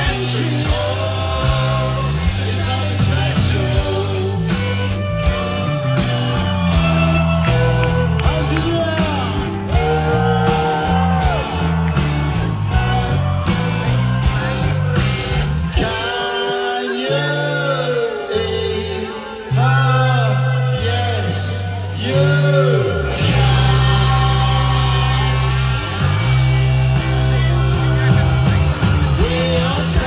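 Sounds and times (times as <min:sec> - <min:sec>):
man singing lead vocal: 0:00.0 - 0:05.2, 0:14.1 - 0:26.0, 0:27.7 - 0:30.0
electric guitar: 0:00.0 - 0:16.2, 0:18.5 - 0:30.0
bass guitar: 0:00.0 - 0:30.0
drums: 0:00.0 - 0:30.0
rock band playing live: 0:00.0 - 0:30.0.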